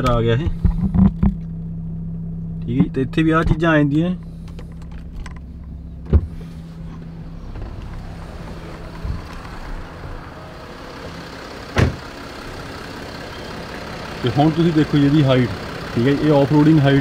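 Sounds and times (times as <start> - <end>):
car engine idling: 0.0 - 17.0
sharp thump: 6.0 - 6.5, 11.8 - 12.0.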